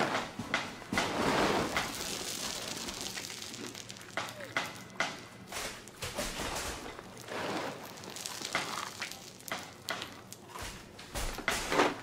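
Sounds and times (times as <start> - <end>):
person chewing dry kibble: 1.7 - 5.0, 6.8 - 10.9.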